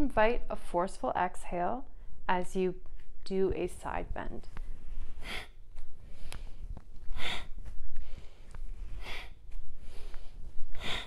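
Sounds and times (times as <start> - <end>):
woman breathing forcefully through nose: 4.7 - 11.0.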